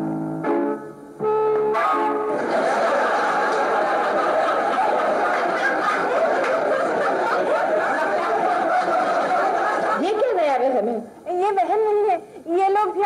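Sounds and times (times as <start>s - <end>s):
studio audience laughing: 2.3s - 10.3s.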